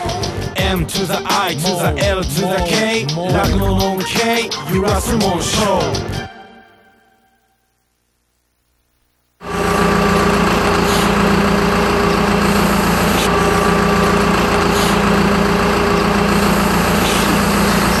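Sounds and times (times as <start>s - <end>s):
diesel engine idling: 9.4s - 18.0s.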